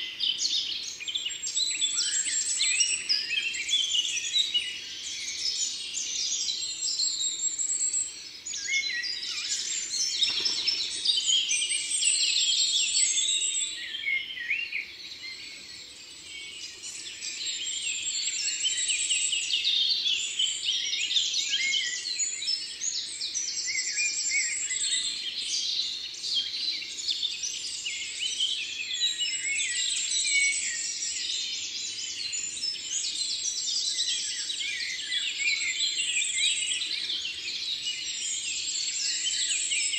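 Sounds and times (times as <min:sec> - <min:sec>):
birds chirping and trilling: 0:08.1 - 0:14.0.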